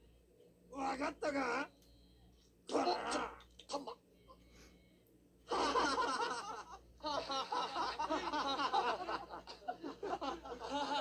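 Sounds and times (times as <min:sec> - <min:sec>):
men laughing loudly: 0:05.5 - 0:11.0.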